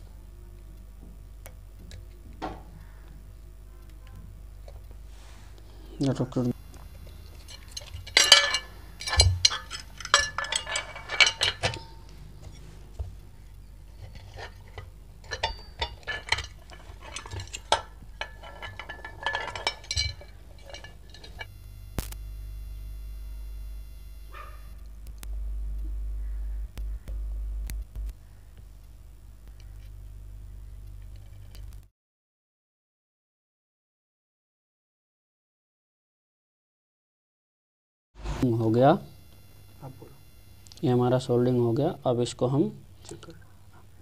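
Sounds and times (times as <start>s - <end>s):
steady low hum: 0.0s - 31.9s, 38.2s - 44.0s
plastic parts clicking and clattering: 7.5s - 11.9s, 14.0s - 21.5s.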